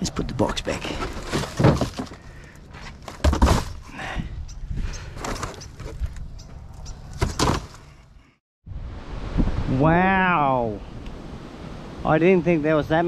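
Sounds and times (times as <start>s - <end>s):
cardboard boxes rustling and scraping: 0.6s - 3.9s, 5.1s - 6.2s, 7.1s - 8.0s
boxes knocking in plastic bin: 1.3s - 2.2s, 3.1s - 3.8s.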